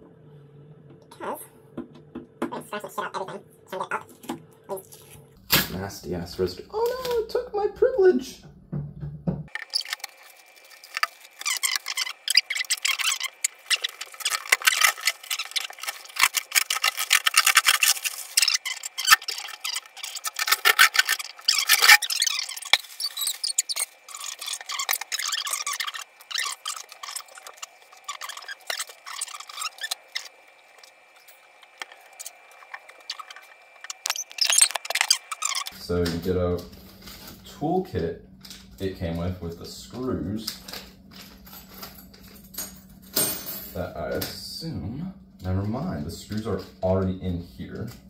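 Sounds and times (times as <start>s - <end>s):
plastic film crackling and rustling: 9.5s - 37.8s, 39.9s - 42.3s.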